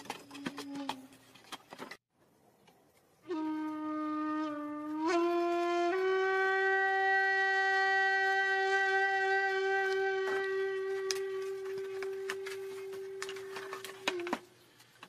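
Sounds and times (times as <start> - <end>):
long horn-like tone: 3.2 - 14.4.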